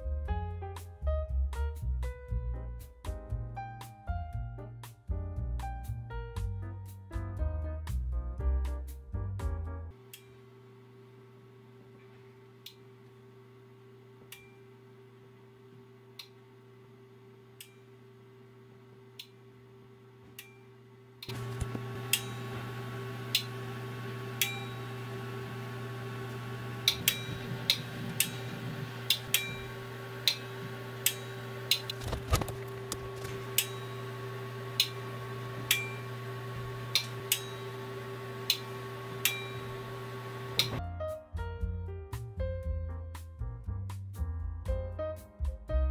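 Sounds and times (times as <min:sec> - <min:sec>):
low electrical hum: 0:09.9 - 0:40.9.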